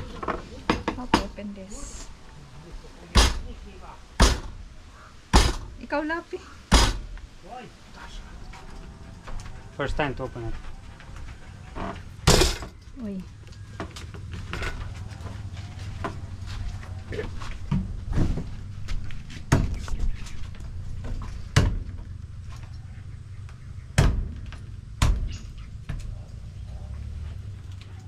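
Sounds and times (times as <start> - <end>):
machete chopping fruit: 3.1 - 3.5, 4.2 - 4.6, 5.3 - 5.7, 6.7 - 7.1, 25.0 - 26.0.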